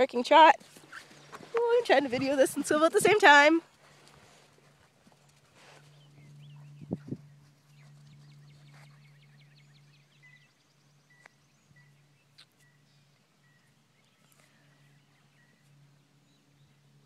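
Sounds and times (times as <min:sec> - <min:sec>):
faint low hum: 0:00.0 - 0:17.0
small birds chirping: 0:05.7 - 0:17.0.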